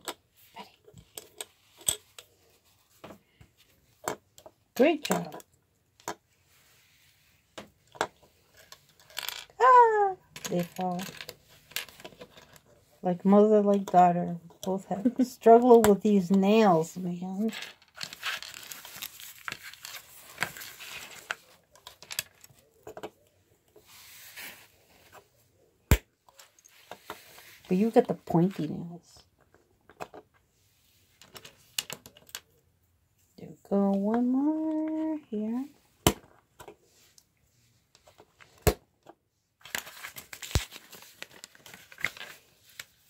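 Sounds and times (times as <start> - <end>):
plastic pieces rattling: 7.9 - 9.6, 10.3 - 12.7, 17.4 - 23.0.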